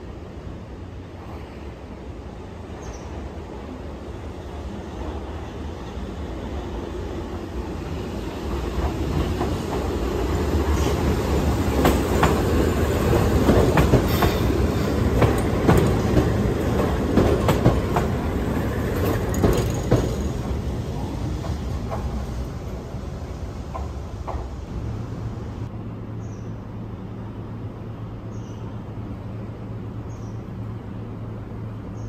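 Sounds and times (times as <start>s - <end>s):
train rumbling past: 0.0s - 32.0s
wheels clacking over rail joints: 5.8s - 24.7s.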